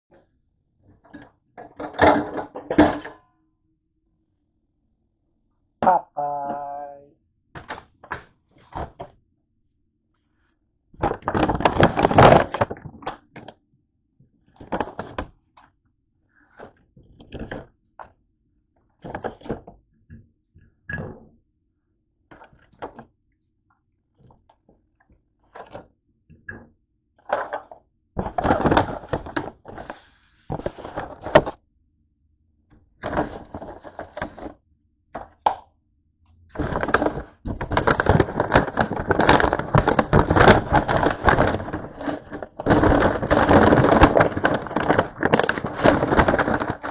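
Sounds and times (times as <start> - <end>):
paper bag and box rustling: 11.0 - 13.1, 28.2 - 31.6, 33.0 - 34.6, 36.5 - 46.9.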